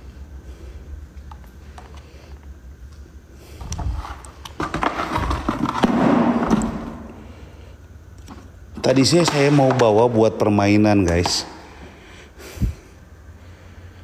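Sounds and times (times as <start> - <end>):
low steady rumble: 11.6 - 14.0.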